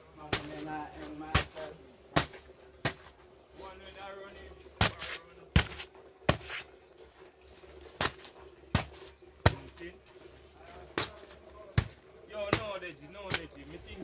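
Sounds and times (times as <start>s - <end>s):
shovel chopping into paper bags: 4.8s - 6.7s.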